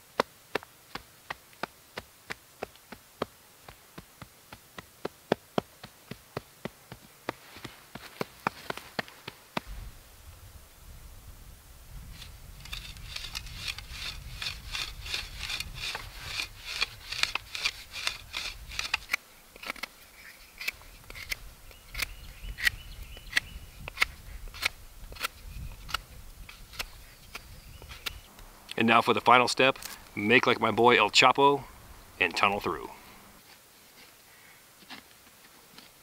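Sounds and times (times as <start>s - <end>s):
shovel scraping into soil: 12.1s - 20.0s.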